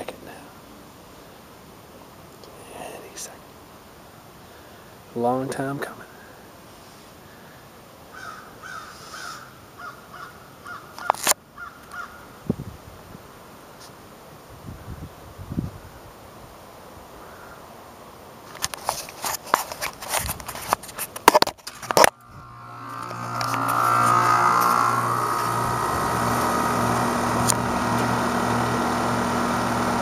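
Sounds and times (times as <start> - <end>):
camera handling knocks and rustles: 18.5 - 22.2
air conditioner unit humming: 22.1 - 30.0.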